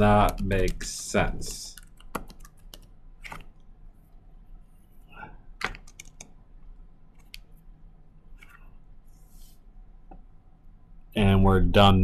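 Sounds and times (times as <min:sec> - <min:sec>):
keyboard keys clicking: 0:01.8 - 0:03.4, 0:05.6 - 0:06.3.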